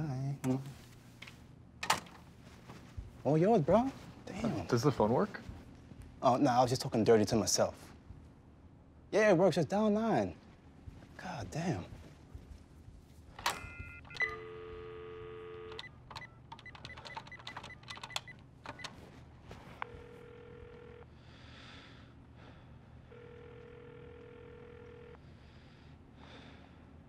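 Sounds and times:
telephone ringing tone: 13.5 - 18.3, 19.8 - 21.1, 23.1 - 25.2
dial tone: 13.7 - 15.9, 19.8 - 21.1, 23.1 - 25.2
keypad clicks: 15.7 - 19.0.

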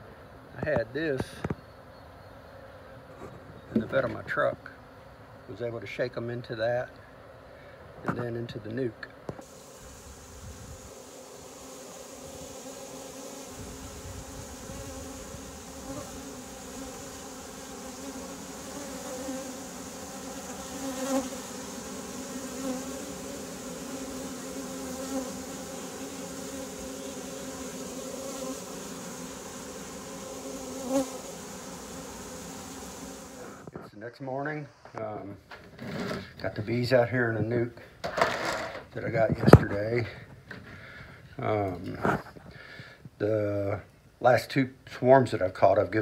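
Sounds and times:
swarm of bees buzzing: 9.4 - 33.7
bees flying past microphone: 9.4 - 33.8.

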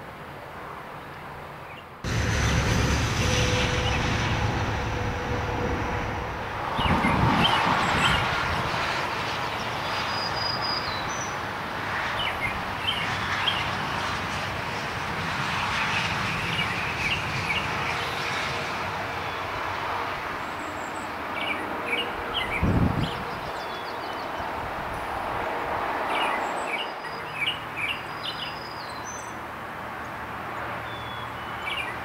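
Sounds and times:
wind: 0.0 - 32.0
distant highway traffic: 0.1 - 32.0
low rumble: 2.1 - 9.2.

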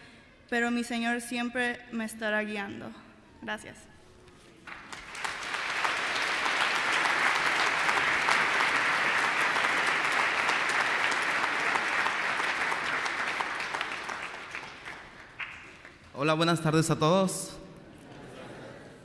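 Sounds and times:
crowd applauding: 4.6 - 16.1.

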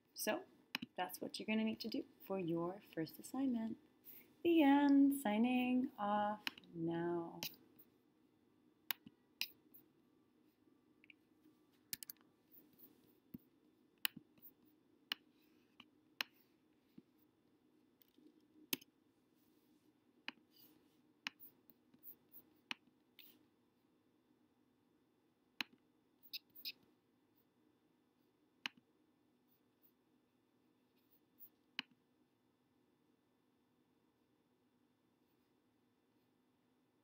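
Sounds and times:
faint low hum: 0.0 - 37.0
computer mouse clicks: 11.9 - 12.2, 21.3 - 23.4.

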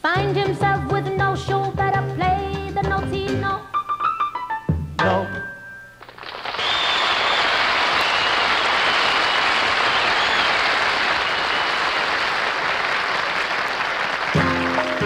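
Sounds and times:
band playing: 4.4 - 6.2, 14.3 - 15.0
audience applauding: 6.0 - 15.0.

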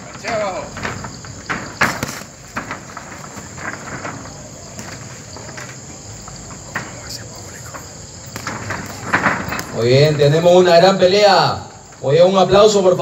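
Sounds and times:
crickets chirring: 0.0 - 13.0
sharp smacks: 8.3 - 9.8.

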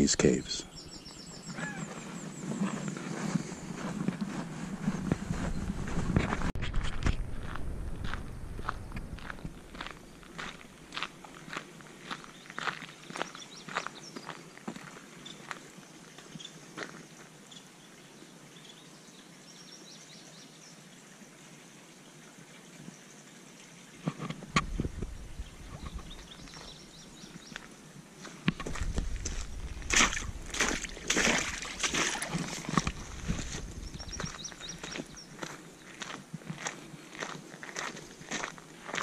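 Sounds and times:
footsteps on dirt trail: 1.1 - 17.3, 24.6 - 39.0
low rumble: 4.7 - 10.7.

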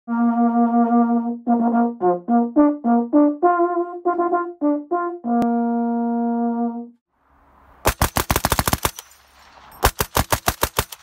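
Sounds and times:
solo brass instrument playing: 0.1 - 7.1.

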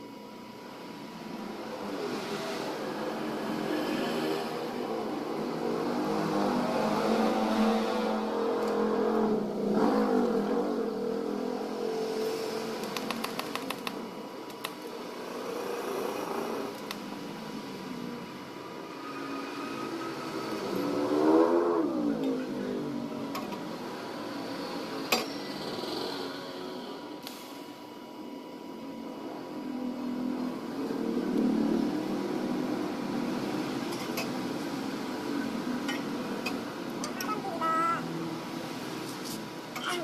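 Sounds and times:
vehicle engines passing: 1.2 - 13.1, 14.9 - 27.1, 29.2 - 40.0
quick run of clicks: 12.8 - 14.8.

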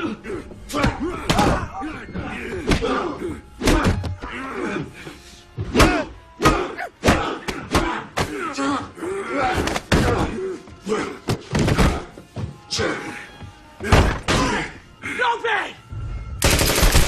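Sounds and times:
men grunting: 0.0 - 15.2
film music score: 0.0 - 17.0.

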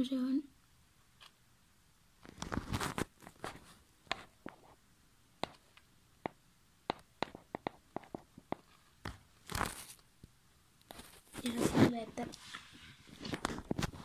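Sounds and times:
rustling: 2.2 - 4.8, 8.1 - 10.1, 10.8 - 14.0
sharp clicks and taps: 5.4 - 9.2.

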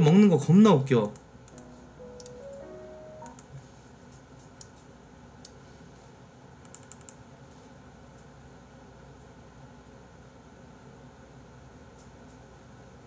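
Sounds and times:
soft rising music notes: 1.6 - 3.6
faint mouse clicks: 6.6 - 7.2.

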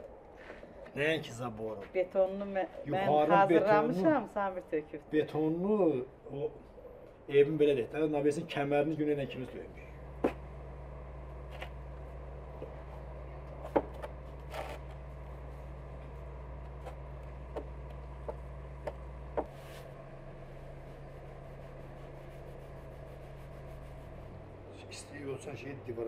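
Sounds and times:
steady low hum: 0.0 - 26.0
brick scraping: 13.5 - 20.0.

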